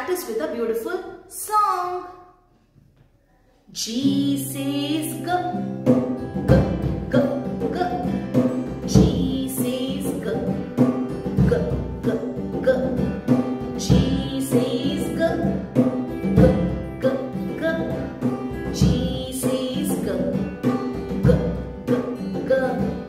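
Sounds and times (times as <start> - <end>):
woman singing: 3.7 - 23.0
drum beat: 15.2 - 19.5, 20.1 - 22.2.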